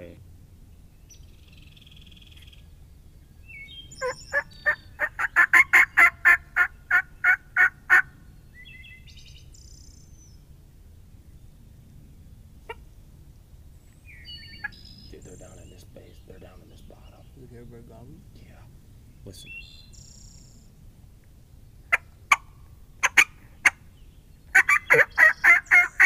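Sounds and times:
songbirds chirping: 0.0 - 26.0
turkey calling: 1.1 - 10.1, 12.6 - 13.0, 14.0 - 20.7, 21.8 - 26.0.

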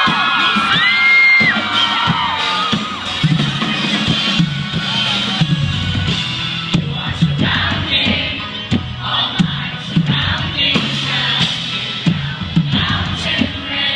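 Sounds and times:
bass line: 0.0 - 13.9
live rock band playing: 0.0 - 13.9
crowd singing along: 6.1 - 13.9.

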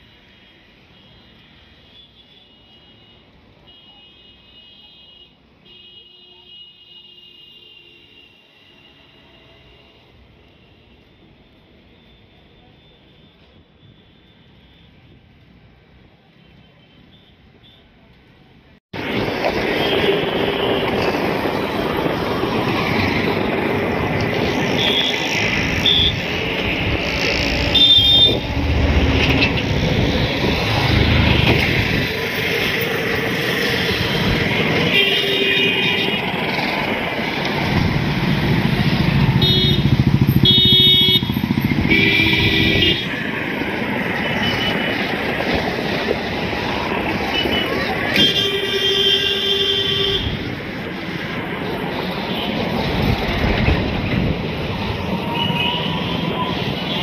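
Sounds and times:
road traffic passing: 17.4 - 57.0.

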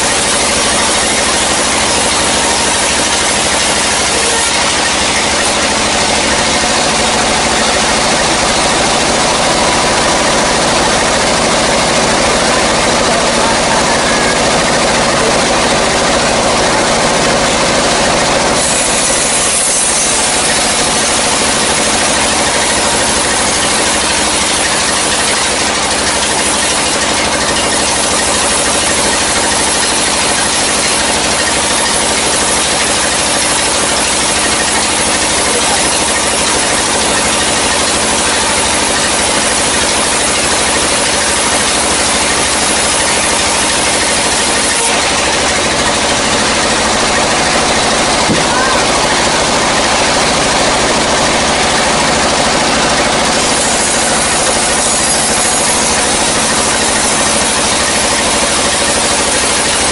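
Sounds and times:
band saw ripping through log: 53.0 - 59.9.

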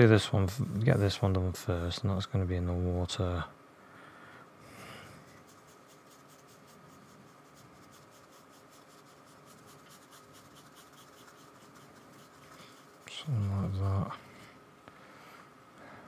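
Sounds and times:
paintbrush scratching on paper: 5.1 - 14.2.

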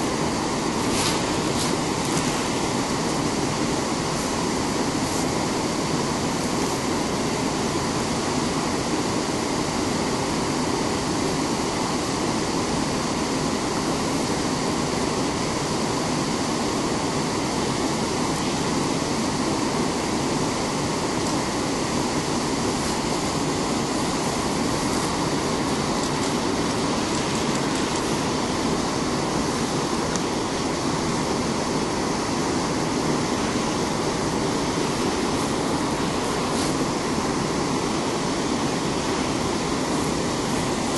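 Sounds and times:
whitewater rushing over rocks: 0.0 - 40.9.

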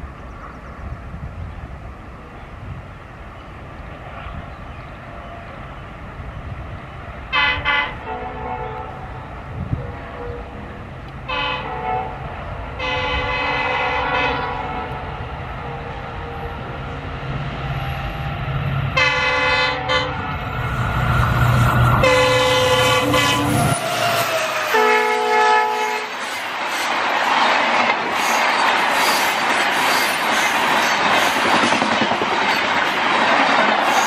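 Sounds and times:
diesel locomotive engine: 0.0 - 34.0
locomotive horn blasts: 7.3 - 10.6, 11.3 - 12.2, 12.8 - 15.0, 19.0 - 20.3, 22.0 - 23.7, 24.7 - 26.2.

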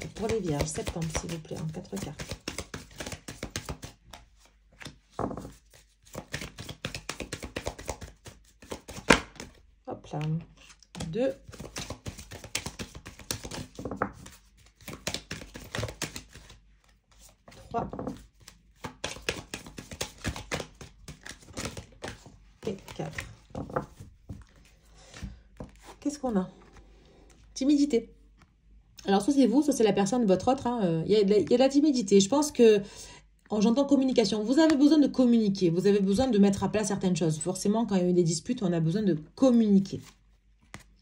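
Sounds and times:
cards being shuffled: 0.0 - 26.0, 40.0 - 41.0.

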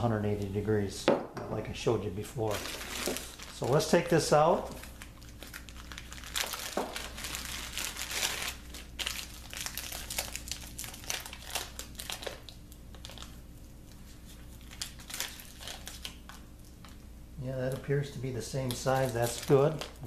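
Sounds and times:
plastic bag crinkling: 2.4 - 13.4, 14.0 - 17.0, 18.4 - 20.0.

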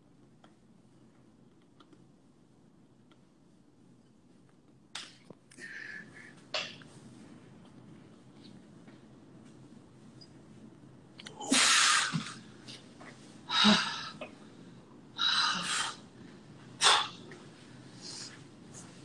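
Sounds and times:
man breathing forcefully: 15.2 - 16.0.

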